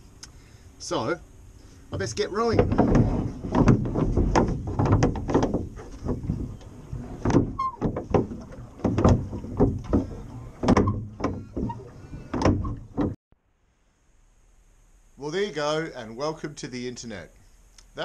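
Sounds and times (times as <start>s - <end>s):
water splashing along hull: 1.6s - 13.2s
oars knocking in rowlocks: 2.0s - 13.2s.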